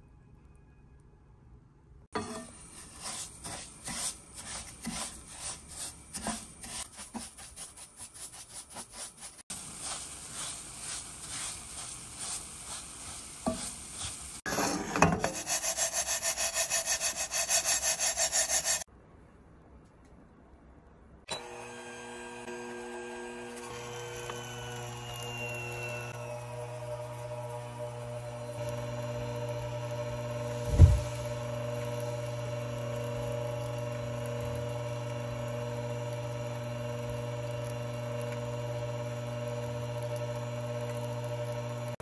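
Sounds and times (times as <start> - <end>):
wooden spatula scraping pan: 2.2 - 18.8.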